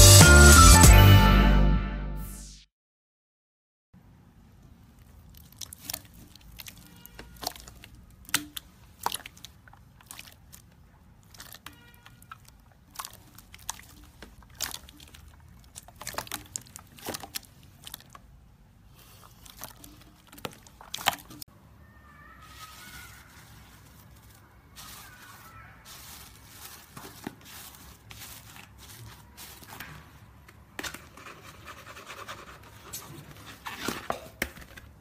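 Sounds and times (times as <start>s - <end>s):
slime squelching and popping: 4.8s - 21.5s.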